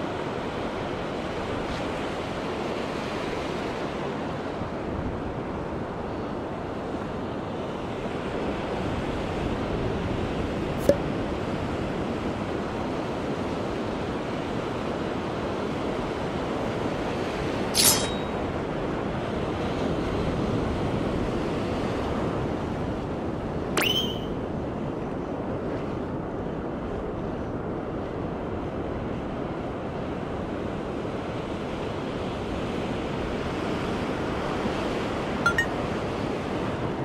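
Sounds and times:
sharp high squeaks: 17.8 - 18.4, 23.8 - 24.4.

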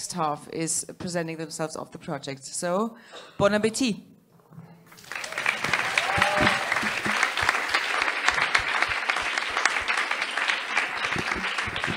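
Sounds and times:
audience applauding: 4.9 - 11.9.

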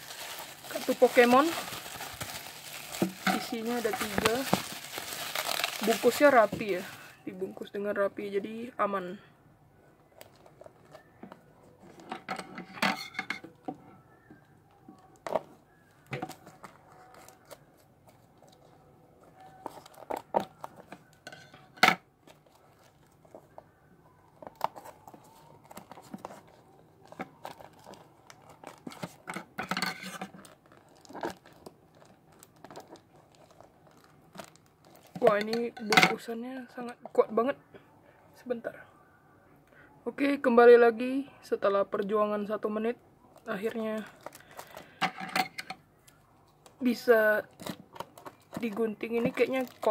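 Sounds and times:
plastic wrapping crinkling: 0.0 - 7.3, 14.9 - 21.4, 22.2 - 35.6, 43.3 - 45.0, 46.0 - 49.9.

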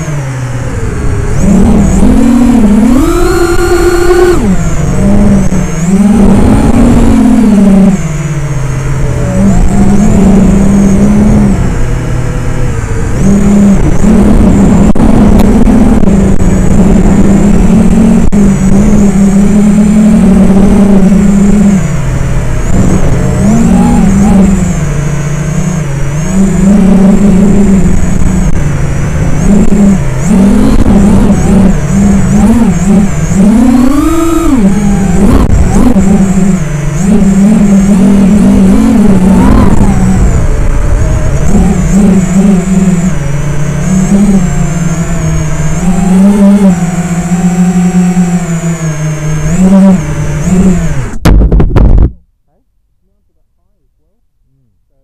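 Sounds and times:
drone motors whining: 0.0 - 52.1.

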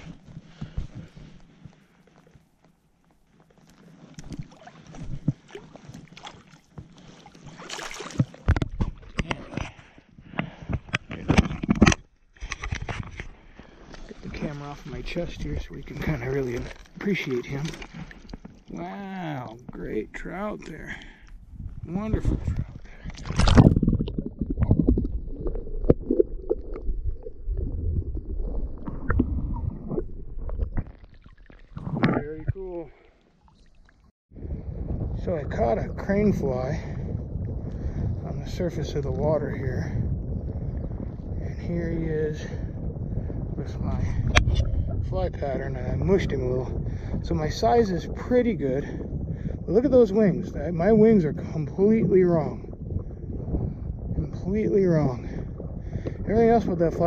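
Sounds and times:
water splashing and sloshing: 0.0 - 34.1, 43.9 - 50.1.

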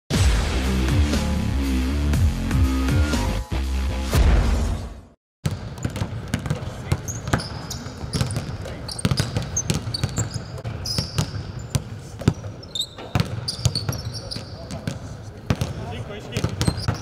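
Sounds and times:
basketballs bouncing on court: 5.4 - 17.0
sneaker squeaks: 5.5 - 17.0.

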